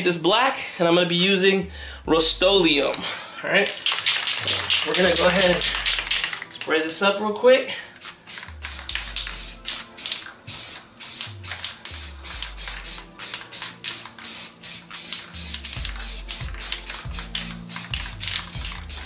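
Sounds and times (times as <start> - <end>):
background music with deep bass: 1.1 - 3.2, 4.1 - 6.7, 7.9 - 19.0
spray paint can hissing: 2.2 - 3.0, 3.6 - 6.7, 8.0 - 19.0.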